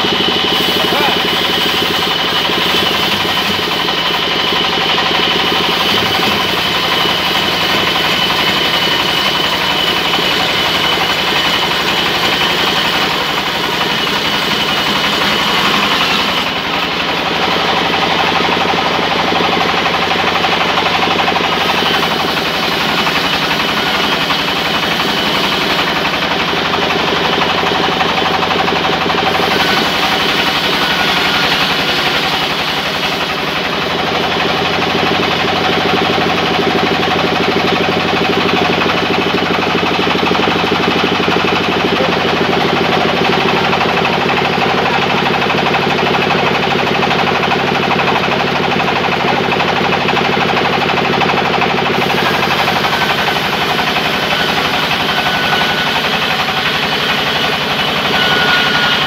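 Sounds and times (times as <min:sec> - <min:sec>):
band saw cutting log: 0:00.0 - 0:59.0.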